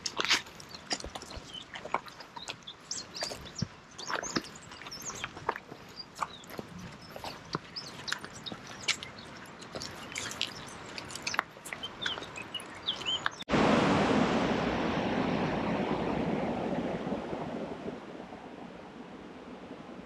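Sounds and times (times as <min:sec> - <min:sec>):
footsteps on rock: 0:00.0 - 0:13.4.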